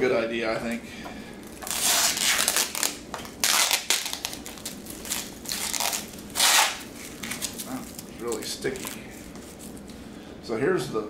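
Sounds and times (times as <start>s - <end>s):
plastic wrap crinkling and tearing: 1.4s - 9.9s.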